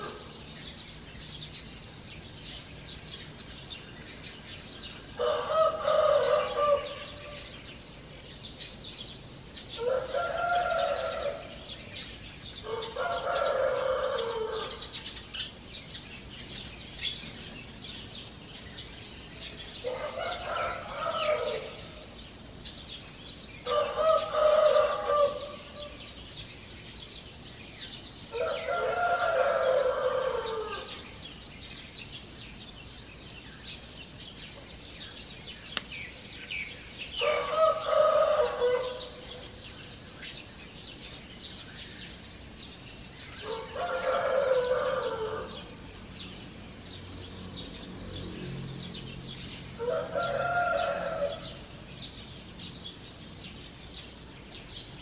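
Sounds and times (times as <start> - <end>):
small songbirds chirping: 0.0 - 55.0
roosters crowing: 5.2 - 7.6, 9.6 - 11.8, 12.6 - 15.0, 19.8 - 22.0, 23.6 - 26.0, 28.3 - 31.3, 37.1 - 39.7, 43.4 - 45.8, 49.3 - 51.8.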